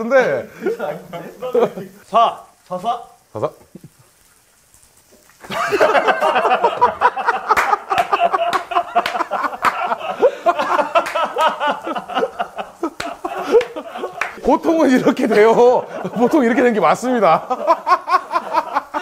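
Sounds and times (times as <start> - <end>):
men laughing hard: 5.4 - 19.0.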